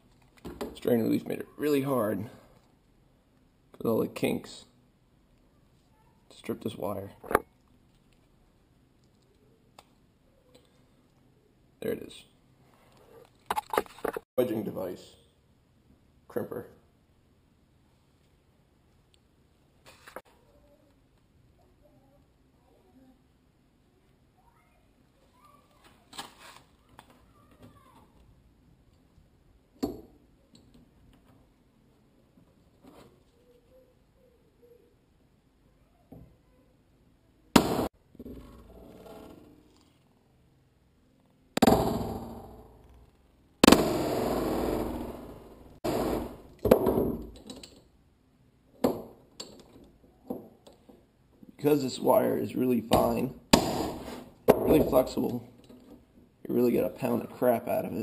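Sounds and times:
cable scraping rustle: 25.2 - 27.4.

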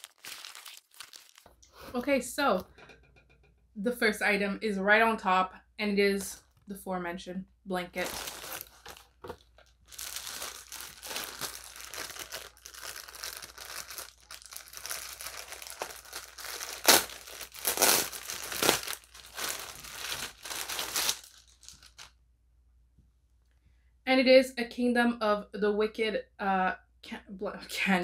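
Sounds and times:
packaging wrapping crinkling: 0.0 - 1.6, 8.0 - 22.1.

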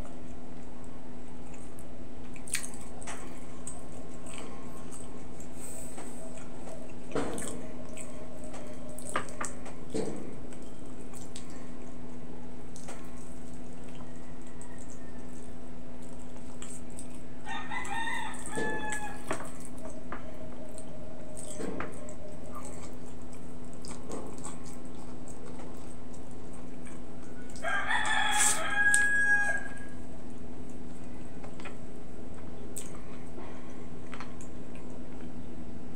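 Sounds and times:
eating clicks and smacks: 0.0 - 29.1, 30.6 - 33.4
steady low hum: 0.0 - 35.9
rooster crowing: 13.9 - 15.5, 17.4 - 19.5, 27.4 - 30.0.

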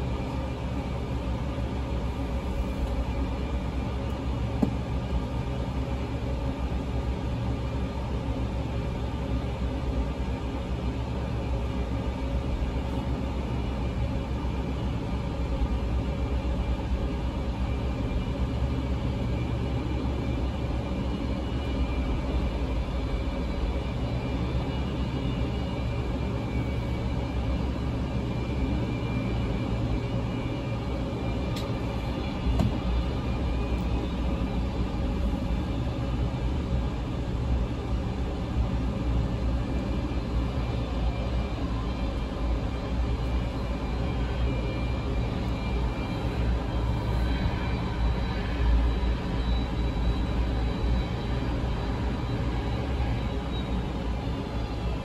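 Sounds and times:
jet engines rumbling: 0.0 - 55.0.

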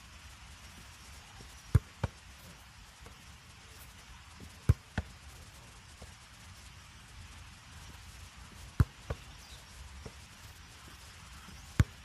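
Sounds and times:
football kicked hard: 1.7 - 2.2, 4.4 - 5.1, 8.7 - 9.3, 11.7 - 12.0.

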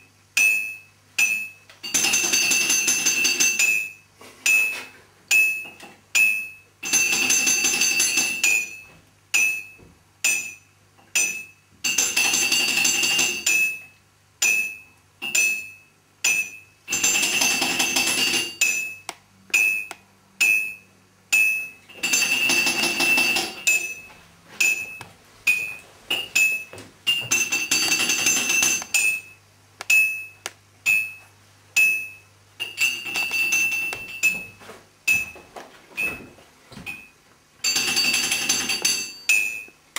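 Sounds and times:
bright clinking hits: 7.9 - 12.2, 12.8 - 31.2, 36.9 - 39.7.

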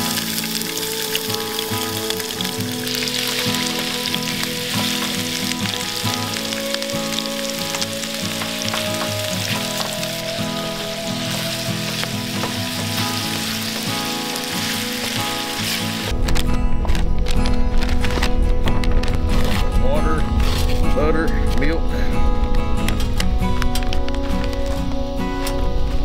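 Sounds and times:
food sizzling in a pan: 0.0 - 16.1.

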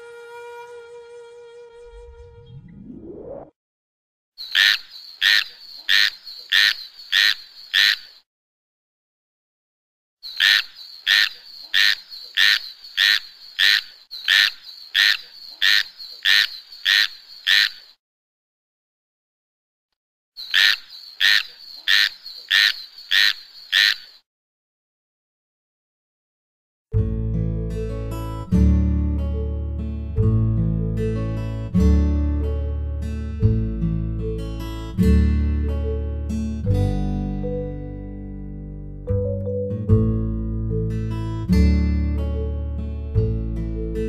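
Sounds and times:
tree frog croaking: 4.4 - 8.2, 10.3 - 18.0, 20.4 - 24.2.

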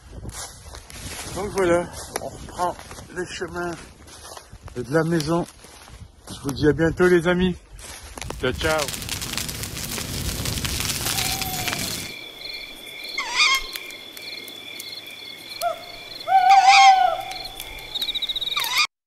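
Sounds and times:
campfire crackling: 0.7 - 18.8
insects trilling: 8.7 - 18.9
owl calling: 13.1 - 13.9, 15.6 - 18.9.

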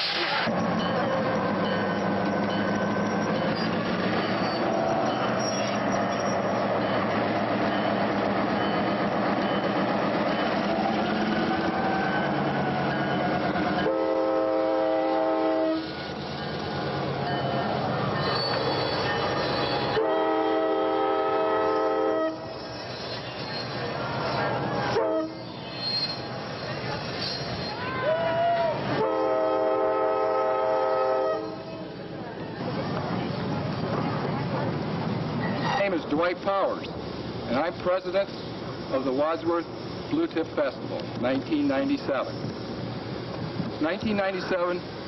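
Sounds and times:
diesel locomotive running: 0.0 - 45.0
locomotive air horn blasts: 13.8 - 15.9, 19.9 - 22.4, 25.0 - 25.4, 29.0 - 31.6.

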